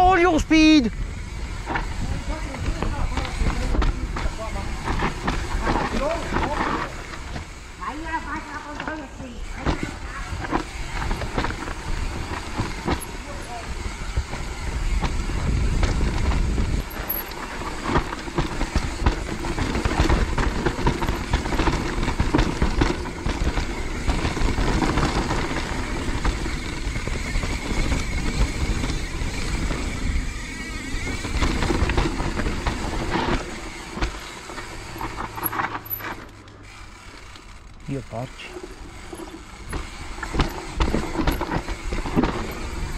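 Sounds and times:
bike tyres over roots: 0.0 - 42.9
chain and frame clatter: 9.6 - 30.2, 30.8 - 42.9.

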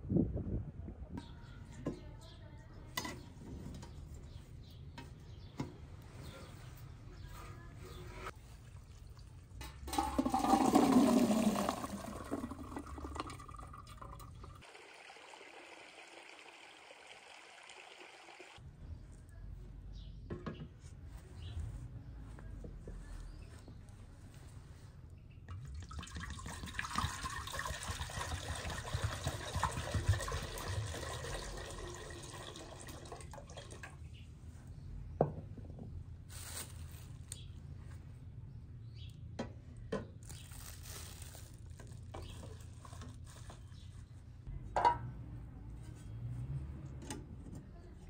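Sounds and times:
water running: 8.6 - 18.6, 25.6 - 33.9.

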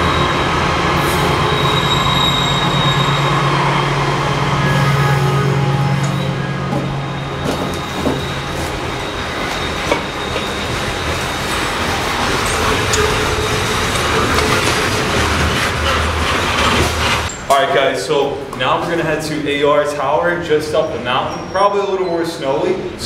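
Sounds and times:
train wheels rumbling on rails: 0.0 - 23.0
sharp clacks of train wheels: 6.0 - 17.5.

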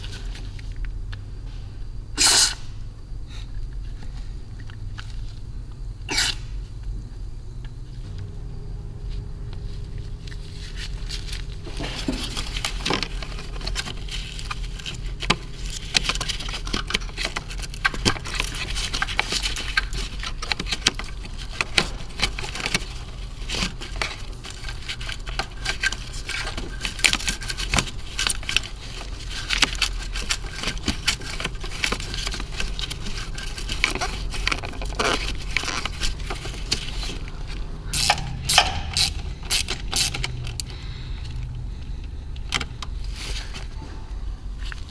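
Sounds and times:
steady low hum: 0.0 - 44.9
hoses and fittings handled: 9.8 - 44.0.

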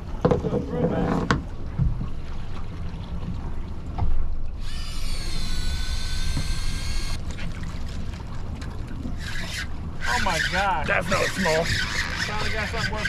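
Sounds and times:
low rumble of wind and boat: 0.0 - 13.0
fishing reel motor whining: 4.6 - 7.2, 9.2 - 13.0.

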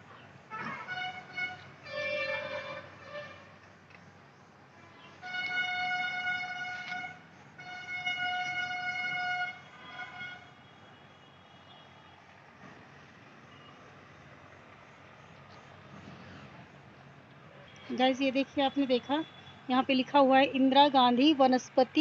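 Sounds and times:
faint outdoor background noise: 0.0 - 22.0
horn blasts: 0.5 - 3.6, 4.8 - 10.9.

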